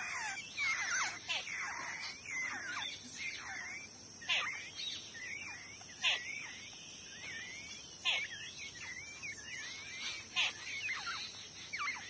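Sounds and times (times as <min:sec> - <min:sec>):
loud downward bird calls: 0:00.0 - 0:12.0
soft twittering chirps: 0:00.0 - 0:12.0.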